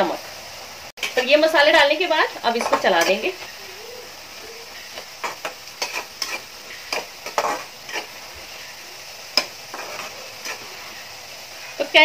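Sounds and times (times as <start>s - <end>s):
faint sizzling greens: 0.0s - 12.0s
metal spatula scraping metal pan: 4.7s - 11.2s.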